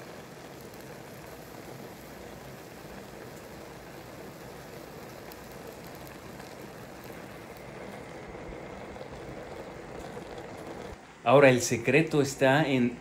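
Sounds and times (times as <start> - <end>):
fruit hissing in a pot: 0.0 - 11.5.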